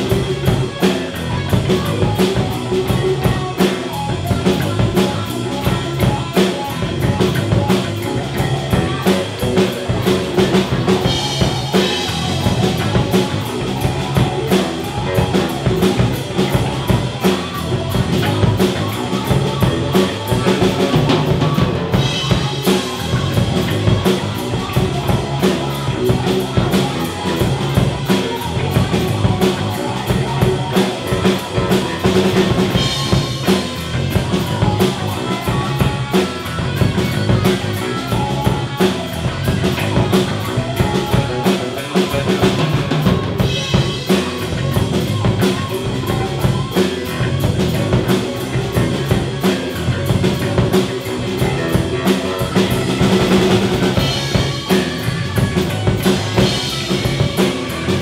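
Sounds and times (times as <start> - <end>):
drum kit with cymbals: 0.0 - 58.0
electric bass: 0.0 - 58.0
electric guitar: 0.0 - 58.0.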